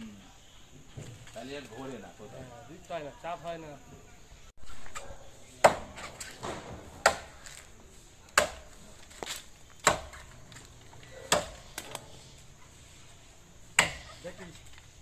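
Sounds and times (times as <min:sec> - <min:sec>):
axe chopping into trunk: 0:05.6 - 0:07.5, 0:08.3 - 0:10.3, 0:11.3 - 0:11.9, 0:13.8 - 0:14.2.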